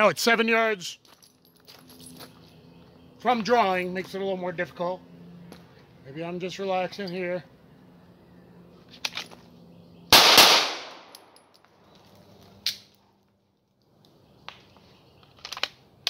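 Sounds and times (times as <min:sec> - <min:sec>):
pistol shots: 0:10.1 - 0:11.3.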